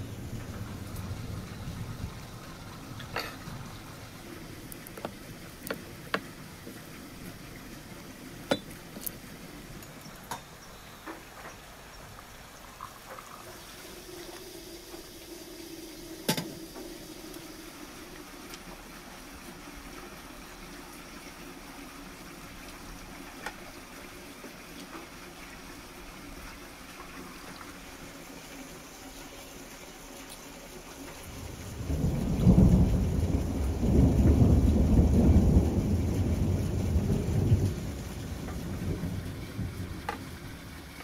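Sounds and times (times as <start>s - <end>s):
faint steady hum: 0.0s - 41.0s
tea pouring into glass: 12.6s - 16.2s.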